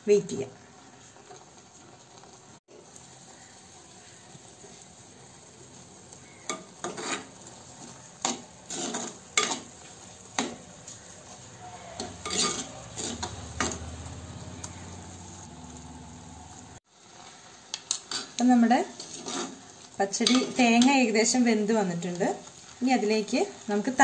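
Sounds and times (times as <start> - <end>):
spoon scraping clay pot: 6.5 - 7.3, 8.2 - 9.7, 11.9 - 13.9, 19.0 - 19.6.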